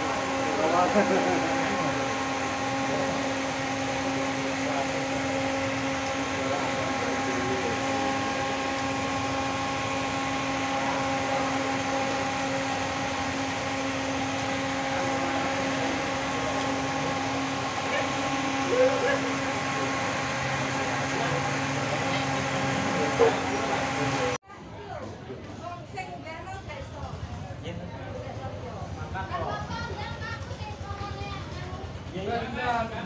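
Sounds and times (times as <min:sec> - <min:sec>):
steady machine hum: 0:00.0 - 0:24.4.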